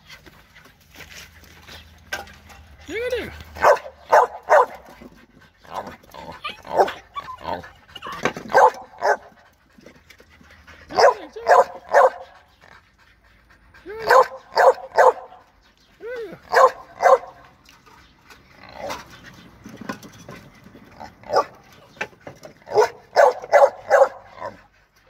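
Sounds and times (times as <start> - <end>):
dogs barking: 3.4 - 9.4, 10.9 - 12.4, 13.8 - 15.6, 16.4 - 17.5, 21.0 - 21.7, 22.6 - 24.7.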